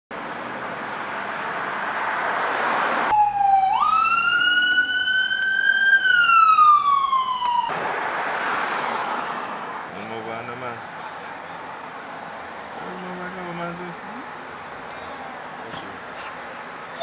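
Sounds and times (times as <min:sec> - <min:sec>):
police siren wailing: 0:03.1 - 0:07.8.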